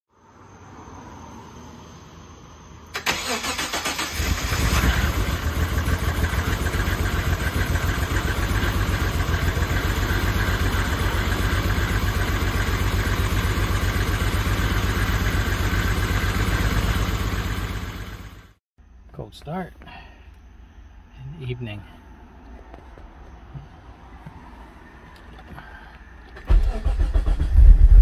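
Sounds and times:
car engine idling: 0:02.9 - 0:18.6
starter motor cranking: 0:26.4 - 0:28.0.

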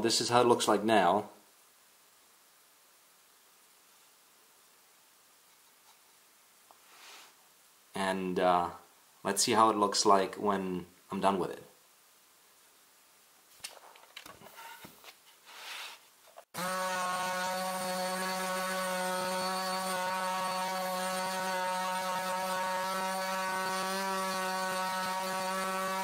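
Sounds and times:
electric sander whining: 0:16.5 - 0:26.0.

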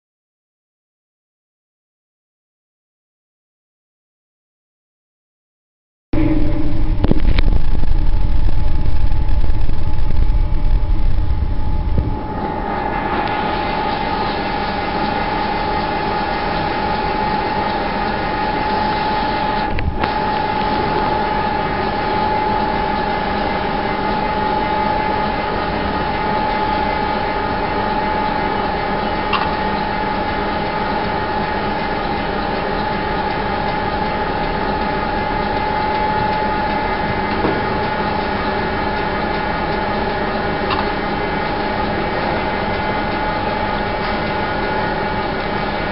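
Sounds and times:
loud low rumble: 0:06.1 - 0:14.4
high held whine: 0:06.2 - 0:45.9
mechanical hum: 0:06.2 - 0:45.9.

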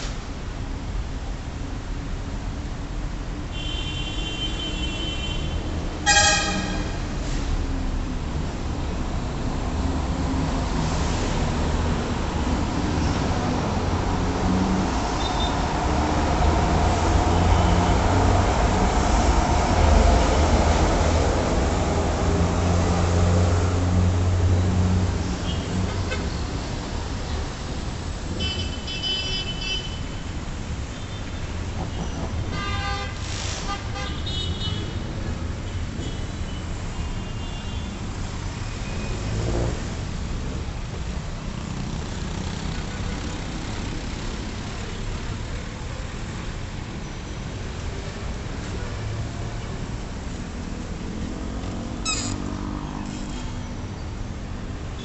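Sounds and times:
busy road traffic: 0:00.0 - 0:55.0
cars passing: 0:05.4 - 0:28.4, 0:38.0 - 0:55.0
motorcycles passing: 0:50.4 - 0:53.4.

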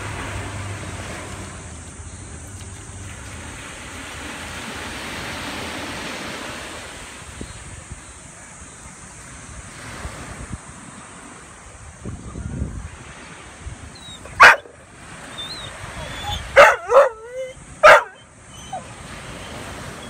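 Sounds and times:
waves washing onto beach: 0:00.0 - 0:20.0
wind buffeting microphone: 0:03.6 - 0:18.1.

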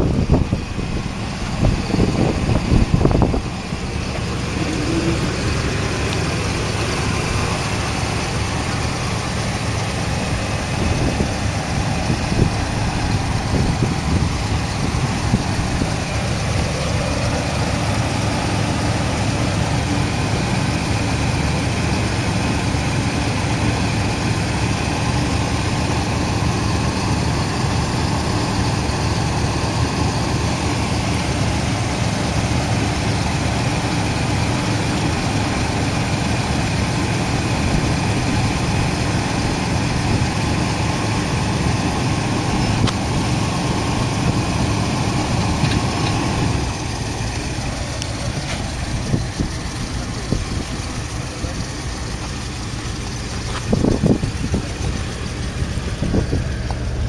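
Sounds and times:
wind on microphone: 0:00.0 - 0:05.9, 0:10.3 - 0:16.1
car engine idling: 0:00.0 - 0:57.0.

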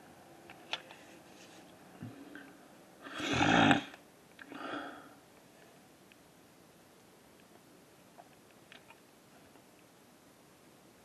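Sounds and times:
person breathing through nose: 0:04.5 - 0:05.2.

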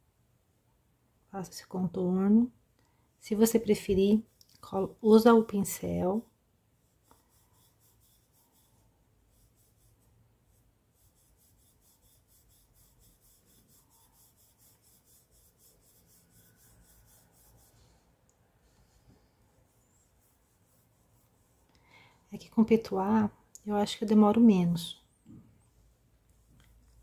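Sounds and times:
paintbrush rubbing on fabric: 0:06.8 - 0:21.7, 0:25.7 - 0:27.0.

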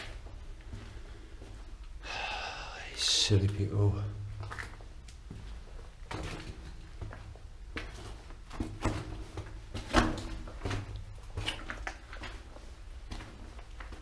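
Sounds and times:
footsteps scuffing and knocking: 0:04.4 - 0:14.0.

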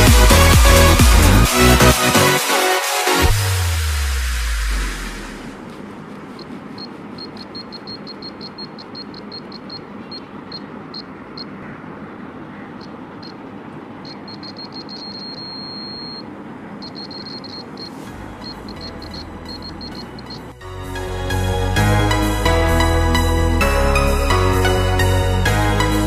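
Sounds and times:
buzzer beeping: 0:06.4 - 0:11.6, 0:14.0 - 0:20.5.

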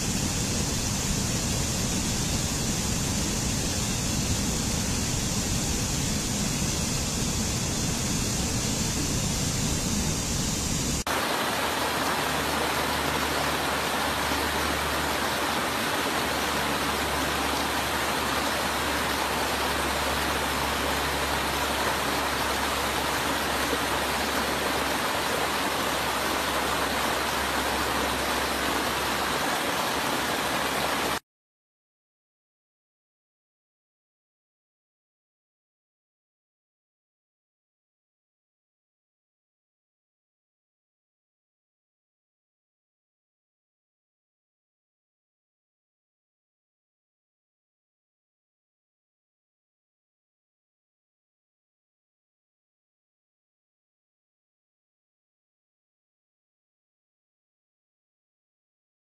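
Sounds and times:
bright rush of water: 0:00.0 - 0:31.2
stream rushing over rocks: 0:10.9 - 0:31.2.

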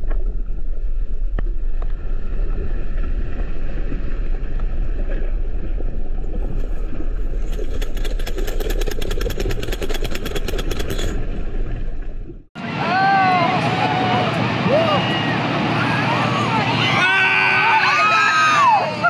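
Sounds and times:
deep underwater rumble: 0:00.0 - 0:12.6
fast fine ticks: 0:07.3 - 0:11.3.

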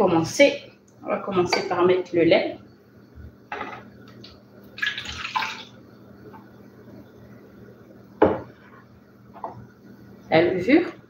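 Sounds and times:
milk pouring into bowl: 0:04.7 - 0:05.8.

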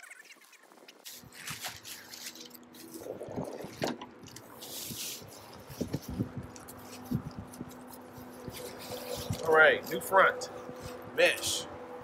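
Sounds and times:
bubble wrap crinkling: 0:00.9 - 0:11.0.

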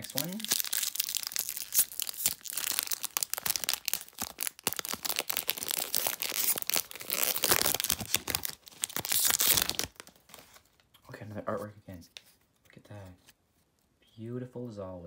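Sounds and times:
foil wrapper crinkling and tearing: 0:00.0 - 0:10.6.

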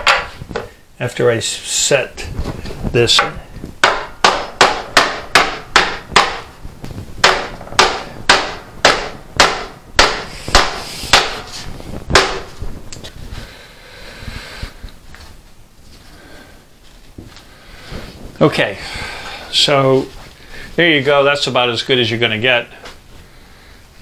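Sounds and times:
hammer beating on sheet metal: 0:03.2 - 0:06.5, 0:07.2 - 0:11.5, 0:12.1 - 0:12.5.

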